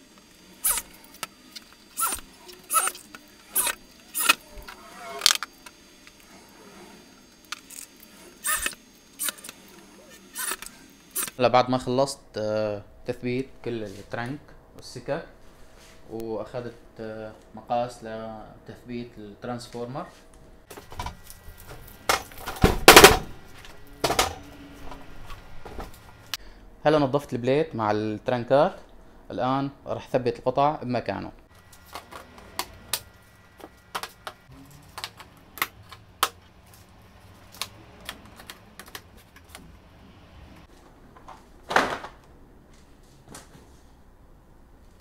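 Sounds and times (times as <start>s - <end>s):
electric drill whirring: 0.0s - 11.4s.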